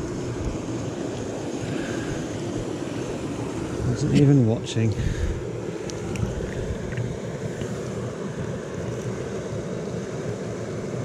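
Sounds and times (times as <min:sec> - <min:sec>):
stream rushing over stones: 0:00.0 - 0:11.0.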